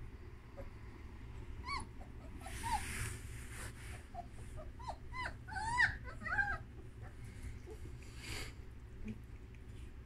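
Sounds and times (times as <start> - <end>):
puppies whimpering: 1.6 - 7.9.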